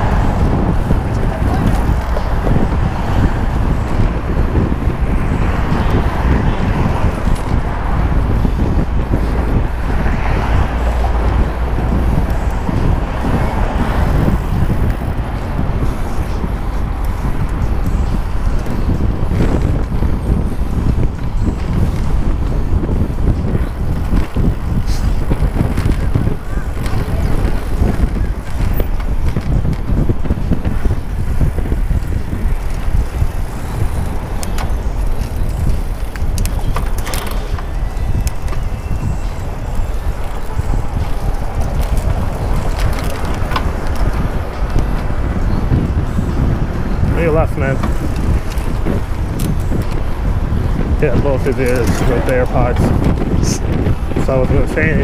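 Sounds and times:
wind buffeting microphone: 0:00.0 - 0:55.0
sharp clicks and rattles: 0:26.8 - 0:38.6, 0:50.9 - 0:55.0.

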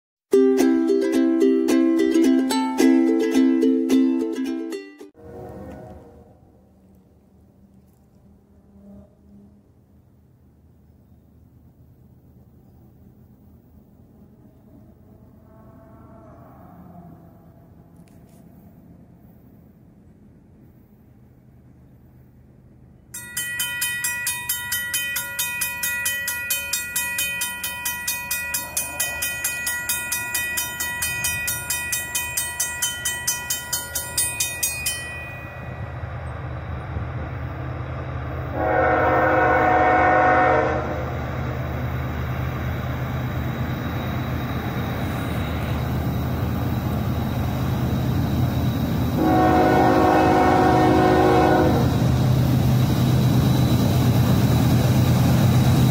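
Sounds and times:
train rumble: 0:05.2 - 0:55.9
railroad crossing bell ringing: 0:23.1 - 0:55.9
locomotive air horn blasts: 0:38.5 - 0:41.1, 0:49.2 - 0:52.0.

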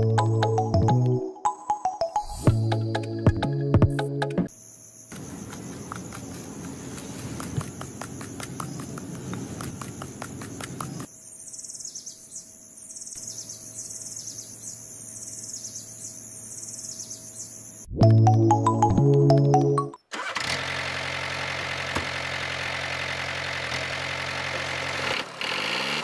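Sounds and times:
insect chirring: 0:04.5 - 0:17.9
hoe scraping gravelly soil: 0:05.2 - 0:09.8.

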